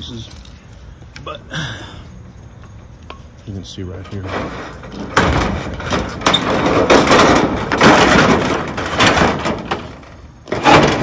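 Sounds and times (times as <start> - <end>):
sheet-metal pieces clattering: 4.2 - 11.0.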